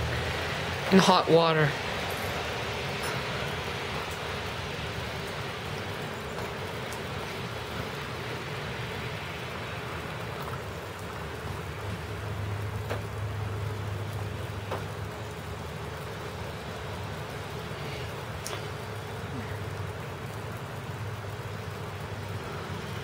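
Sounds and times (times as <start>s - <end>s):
outdoor background hiss: 0.0s - 23.0s
faint clicks: 18.4s - 18.7s.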